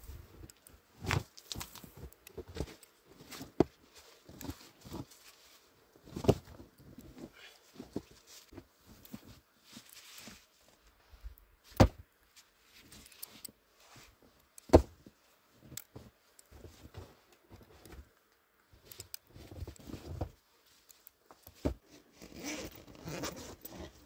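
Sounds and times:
rustling and crunching in snow: 0:00.0 - 0:11.7.

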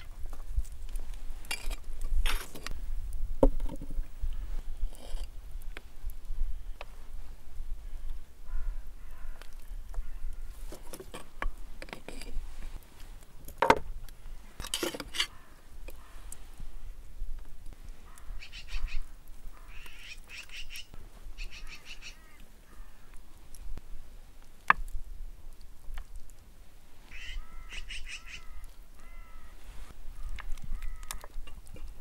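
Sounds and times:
wind rumbling on microphone: 0:00.0 - 0:32.0
metal tongs scraping metal can: 0:14.6 - 0:15.3
short bird calls: 0:18.0 - 0:23.1, 0:27.1 - 0:29.6.

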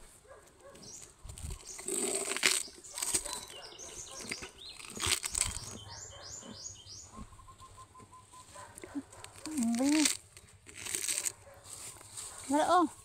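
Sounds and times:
calf feeding crunches: 0:00.0 - 0:07.3, 0:08.3 - 0:12.9
small bird chirping: 0:00.7 - 0:10.5.

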